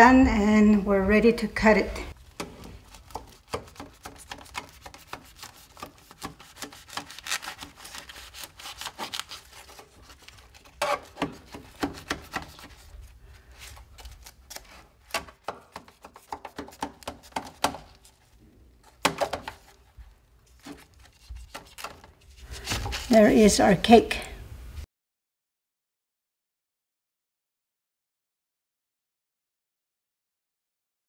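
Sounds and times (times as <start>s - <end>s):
knife sawing through crusty cake: 2.7s - 12.8s.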